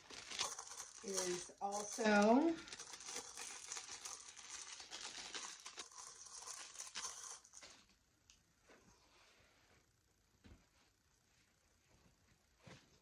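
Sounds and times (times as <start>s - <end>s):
plastic wrapping crinkling: 0.0s - 7.8s.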